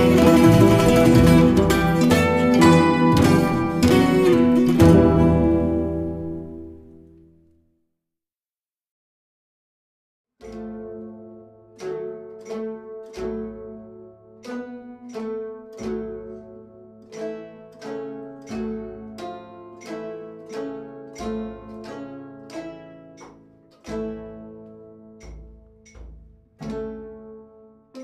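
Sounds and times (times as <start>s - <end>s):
deep low plucked note: 0.0s - 6.9s, 23.1s - 27.7s
plucked string melody: 0.0s - 7.6s, 10.4s - 28.0s.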